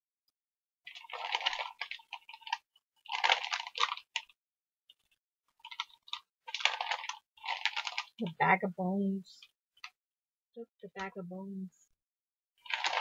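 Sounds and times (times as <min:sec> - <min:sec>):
snack bag crinkling: 0:00.9 - 0:04.4, 0:05.6 - 0:08.3, 0:12.6 - 0:13.0.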